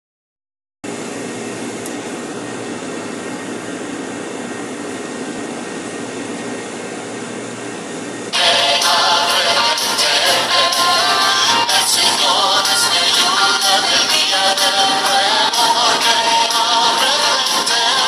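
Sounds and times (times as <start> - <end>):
kitchen ventilation fans humming: 0.8 - 18.0
loud music: 8.3 - 18.0.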